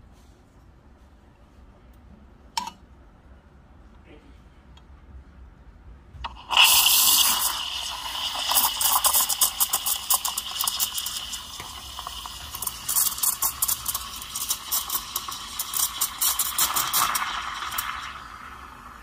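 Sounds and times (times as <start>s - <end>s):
steam wand hissing in milk: 6.3s - 19.0s.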